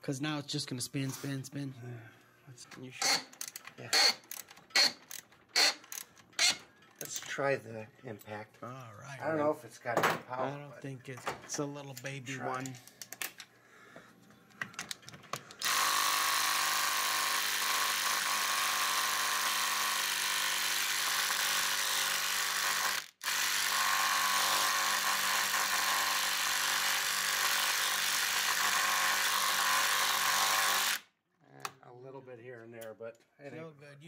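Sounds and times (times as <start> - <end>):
impact driver hammering on bolt: 4.0 - 6.6.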